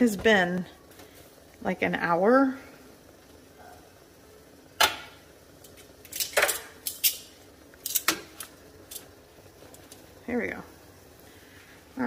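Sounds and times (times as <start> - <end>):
metal tongs clicking on pot: 5.6 - 9.1.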